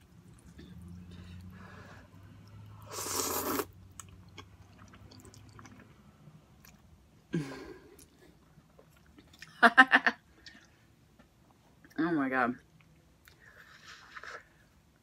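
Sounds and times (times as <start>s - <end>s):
slurping noodles: 2.8s - 3.8s
chewing with wet mouth clicks: 3.9s - 6.0s.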